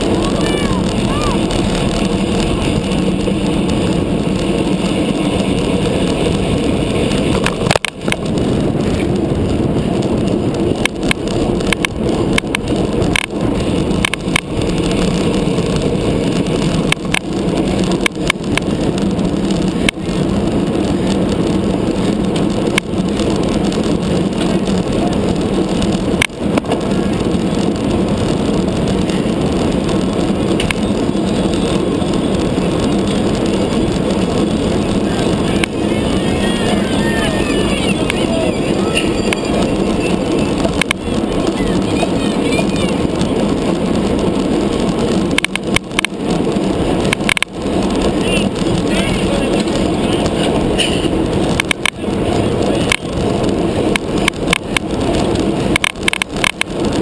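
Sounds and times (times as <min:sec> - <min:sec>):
tyre noise on asphalt: 0:00.0 - 0:57.0
wind rushing over microphone: 0:00.0 - 0:57.0
sharp clicks: 0:30.6 - 0:31.0, 0:45.3 - 0:46.2, 0:47.0 - 0:47.5, 0:55.7 - 0:56.7.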